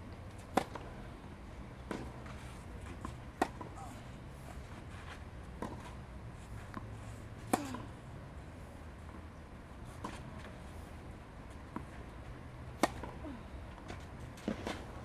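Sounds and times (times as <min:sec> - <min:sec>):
tennis racket hitting ball: 0:12.8 - 0:13.1.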